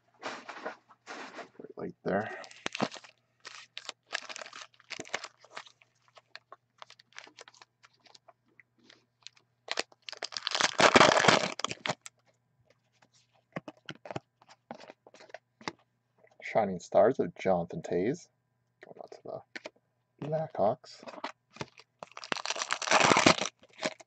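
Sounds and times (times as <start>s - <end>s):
foil wrappers crinkling and tearing: 2.4s - 8.3s, 8.9s - 12.2s, 21.0s - 24.0s
cards clicking and rustling: 13.6s - 15.8s.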